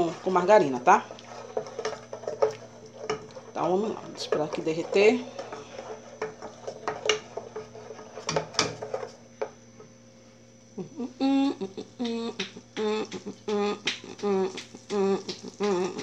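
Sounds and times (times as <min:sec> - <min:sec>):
wooden spoon scraping a pan: 0:00.0 - 0:09.6.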